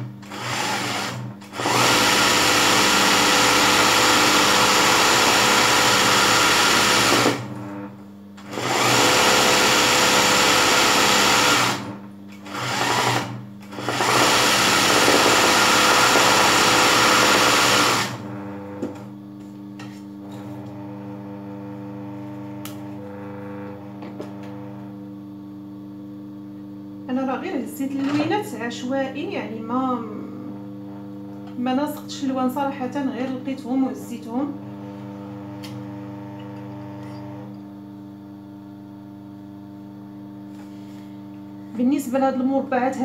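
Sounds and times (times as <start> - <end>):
sewing machine stitching: 0.1 - 7.6, 8.4 - 18.9
steady low hum: 18.2 - 35.7.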